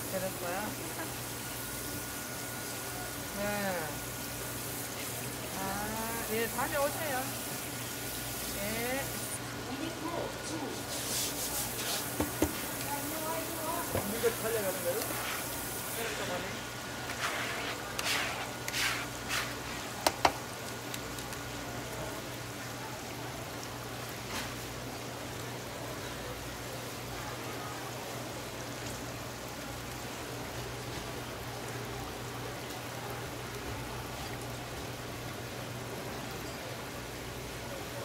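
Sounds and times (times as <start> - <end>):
background hiss: 0.0 - 21.0.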